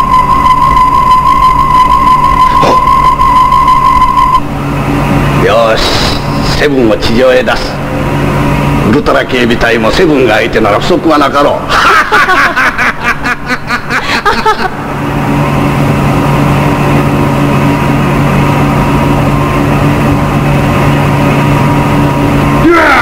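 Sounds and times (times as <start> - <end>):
mechanical hum of machinery: 0.0 - 23.0
people laughing: 11.7 - 14.8.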